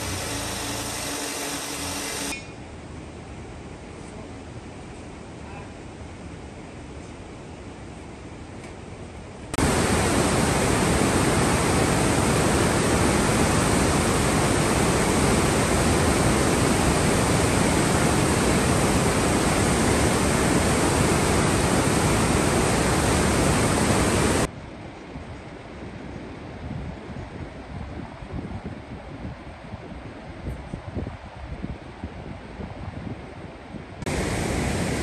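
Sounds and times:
river rapids rushing: 9.6 - 24.5, 34.1 - 35.0.

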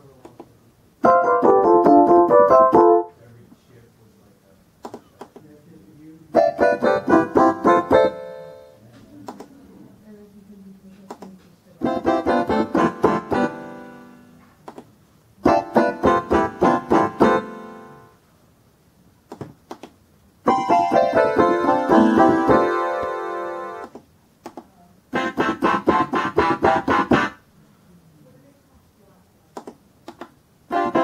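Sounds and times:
electronic keyboard harpsichord notes: 1.0 - 3.1, 6.3 - 8.8, 11.8 - 14.3, 15.4 - 18.2, 20.5 - 23.8, 25.1 - 27.4, 30.7 - 31.0
short clicks: 4.8 - 5.5, 14.6 - 14.9, 29.6 - 30.4.

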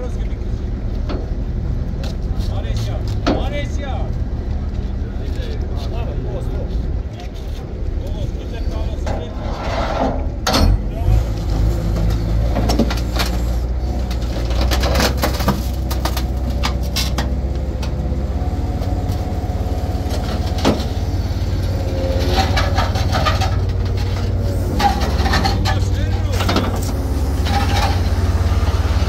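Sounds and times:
rigging clanks and knocks: 3.1 - 3.6, 9.0 - 18.2, 20.0 - 28.4
crane engine droning: 10.1 - 29.0.

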